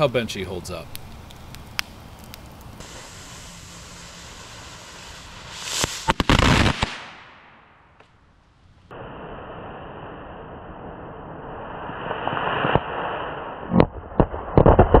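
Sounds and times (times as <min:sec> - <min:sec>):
fuse hissing: 0:01.0 - 0:06.3
firecracker bangs: 0:02.8 - 0:08.2.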